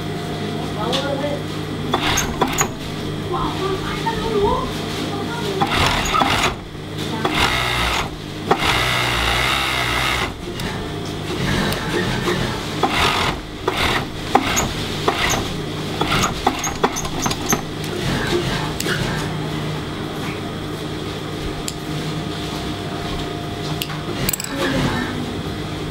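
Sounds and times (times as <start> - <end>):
steady low hum: 0.0 - 25.9
industrial sewing machine stitching: 1.9 - 4.4, 5.0 - 19.5.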